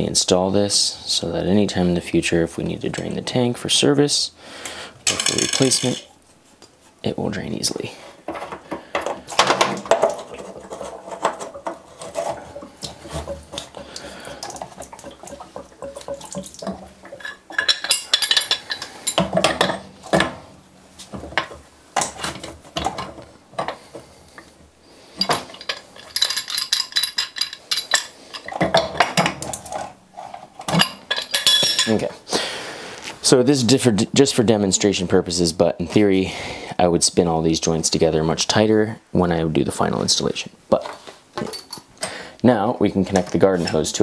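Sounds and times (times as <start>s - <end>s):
brass fittings and wrench clinking: 5.0s - 6.1s, 14.4s - 24.5s, 25.1s - 32.1s, 40.8s - 41.9s.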